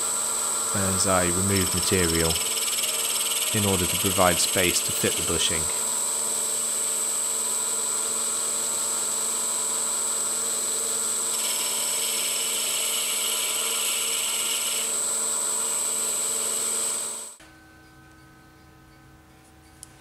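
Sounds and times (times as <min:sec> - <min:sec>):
cutting hiss: 0:00.0 - 0:07.3
lathe high whine: 0:00.0 - 0:17.4.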